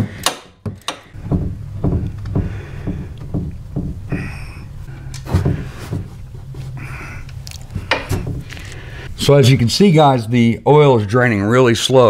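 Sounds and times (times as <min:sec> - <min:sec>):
metallic clicks and knocks: 0:00.0 - 0:04.3
steady low hum: 0:01.0 - 0:11.5.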